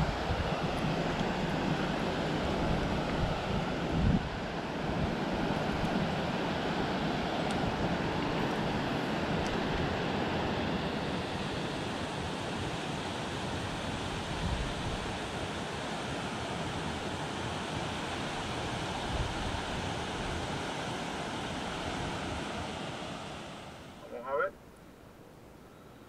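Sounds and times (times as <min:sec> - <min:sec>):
wind buffeting microphone: 0:00.0 - 0:10.5
river water rushing: 0:00.0 - 0:24.5.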